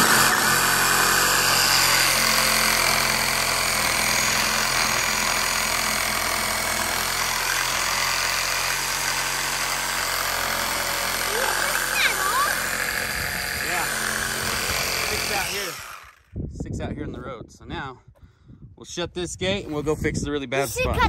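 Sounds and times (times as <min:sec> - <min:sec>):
reciprocating saw cutting wood: 0:00.0 - 0:16.3.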